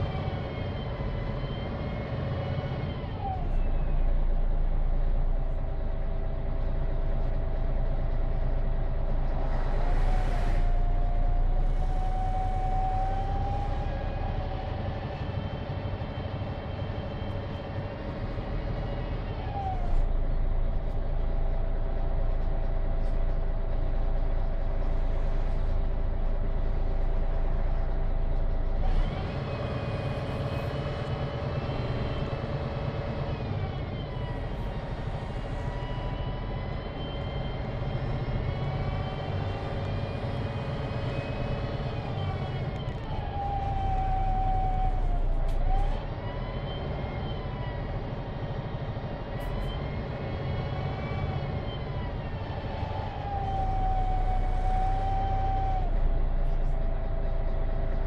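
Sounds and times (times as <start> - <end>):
diesel engine droning: 0.0 - 58.0
gearbox whine: 26.4 - 58.0.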